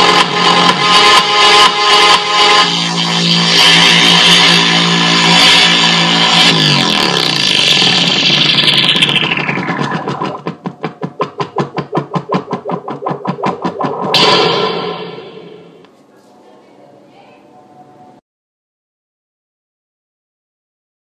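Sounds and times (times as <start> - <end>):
electronic dance music on loudspeaker: 0.0 - 15.8
fast even pulsing: 2.5 - 15.8.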